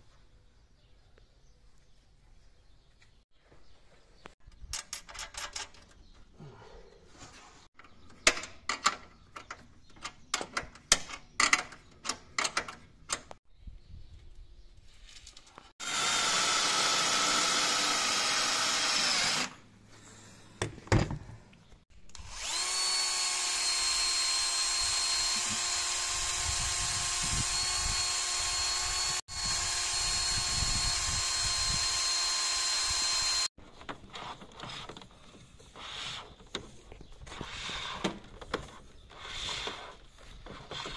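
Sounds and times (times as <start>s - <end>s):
electric drill running: 15.8s - 19.6s, 22.1s - 33.6s.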